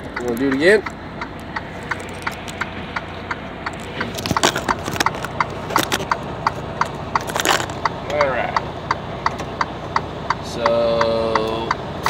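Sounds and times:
knocks and clicks: 0:00.0 - 0:09.7
steady ticking: 0:00.0 - 0:12.0
truck engine idling: 0:00.0 - 0:12.0.

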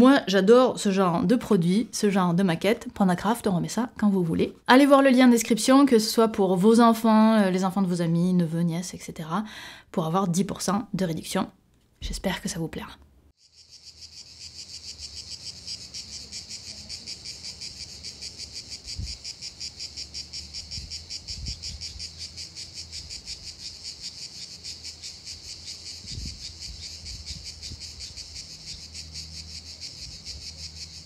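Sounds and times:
insects chirping in a trill: 0:13.4 - 0:31.0.

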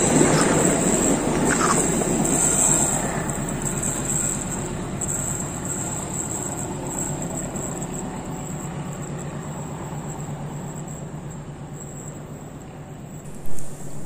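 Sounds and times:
high insect buzz: 0:00.0 - 0:11.0, 0:13.1 - 0:14.0
train wheels rumbling on rails: 0:00.0 - 0:14.0.

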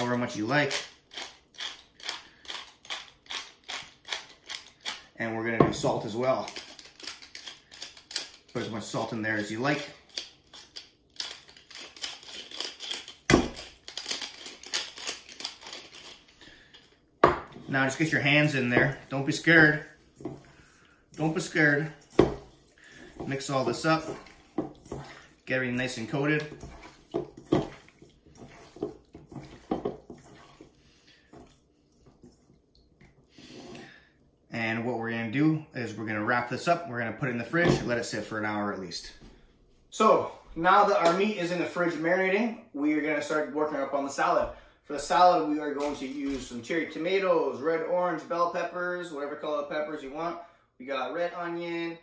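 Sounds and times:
salt mill grinding: 0:00.6 - 0:05.1, 0:10.1 - 0:16.3
meat slapping in bowl: 0:17.2 - 0:33.3
hands squelching meat in marinade: 0:17.8 - 0:33.3.

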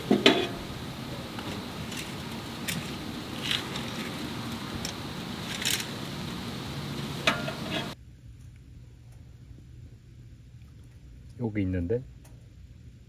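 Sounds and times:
wood fire crackling and popping: 0:00.0 - 0:08.0.

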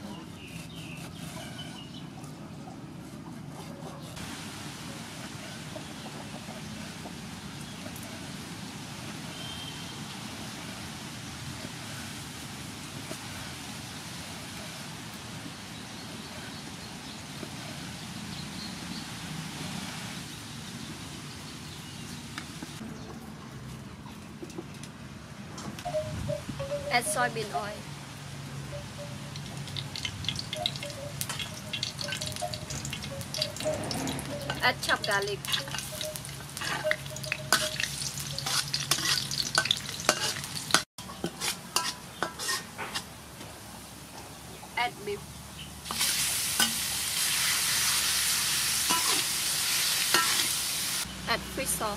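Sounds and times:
outdoor background hiss: 0:04.1 - 0:51.9
garlic sizzling in oil: 0:29.2 - 0:43.1, 0:45.8 - 0:51.2
metal spatula scraping a wok: 0:33.6 - 0:43.1, 0:48.7 - 0:50.6.

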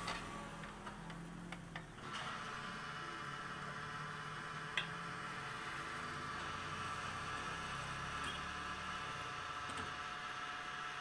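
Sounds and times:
fuel pump dispensing fuel: 0:00.0 - 0:11.0.

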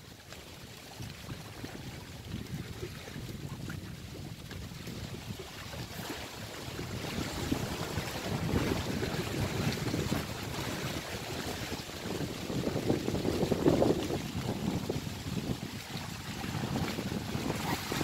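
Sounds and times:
waves splashing against boulders: 0:00.0 - 0:18.0
wind buffeting microphone: 0:01.0 - 0:18.0.

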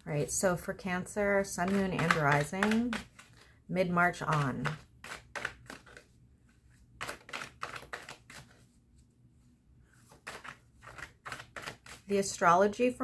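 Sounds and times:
cards being shuffled: 0:01.4 - 0:09.1, 0:09.9 - 0:12.2.

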